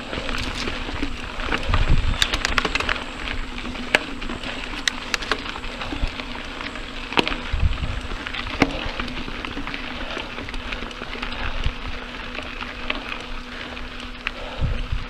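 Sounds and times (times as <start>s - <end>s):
bike knocking and rattling: 0.0s - 15.0s
bike tyres crackling on gravel: 0.0s - 15.0s
steady low hum: 0.0s - 15.0s.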